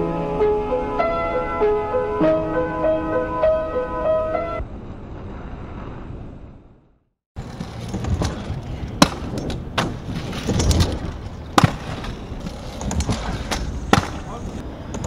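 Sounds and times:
scooter sharp impacts: 7.4s - 15.0s
scooter wheels rolling: 7.4s - 15.0s.

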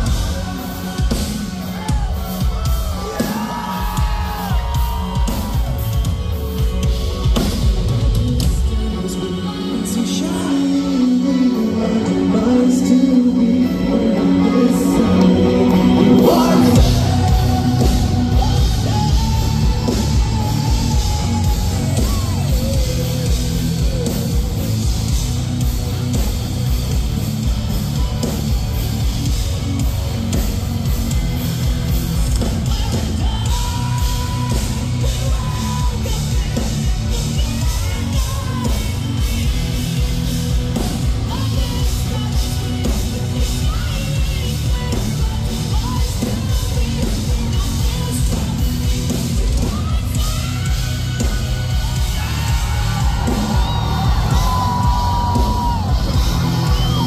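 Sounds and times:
fast pounding drums: 0.0s - 9.0s, 16.2s - 57.0s
distorted electric guitars: 0.0s - 57.0s
person singing and yelling: 8.4s - 25.1s.

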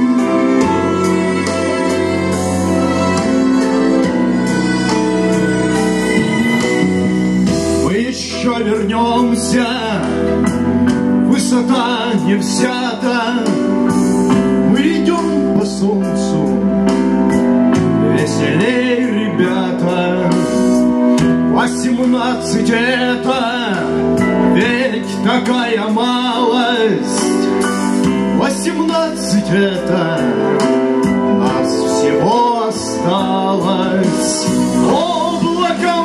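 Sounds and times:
man singing into a microphone: 7.8s - 17.1s, 17.8s - 36.0s.

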